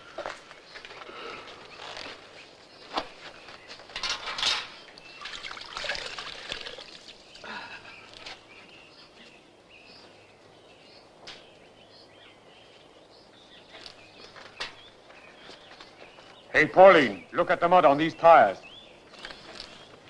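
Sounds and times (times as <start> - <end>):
water splashing in a metal bucket: 5.1 - 7.4.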